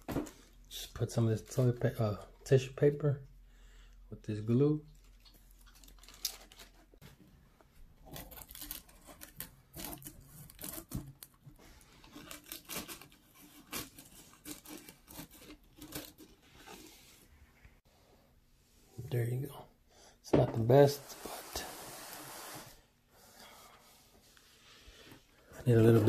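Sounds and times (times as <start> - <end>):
scissors snipping paper: 12.1 - 16.4.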